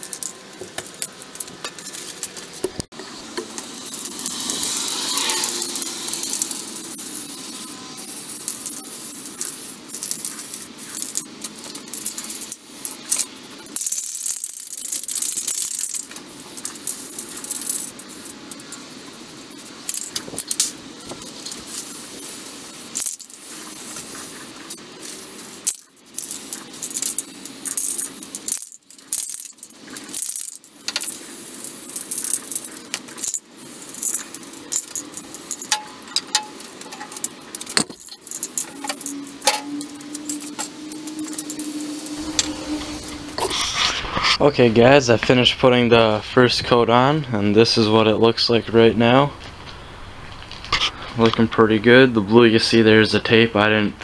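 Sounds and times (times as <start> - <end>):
spray can mixing ball rattling: 0.0 - 44.2
spray can hissing: 3.2 - 44.2.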